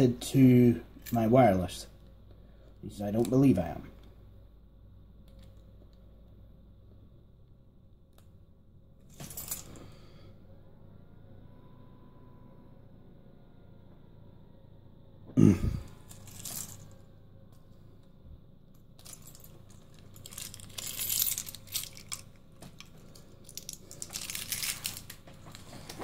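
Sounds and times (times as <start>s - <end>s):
small objects rattling: 9.1s - 9.8s, 16.0s - 17.0s, 19.0s - 26.0s
rustling: 16.1s - 17.0s, 19.0s - 26.0s.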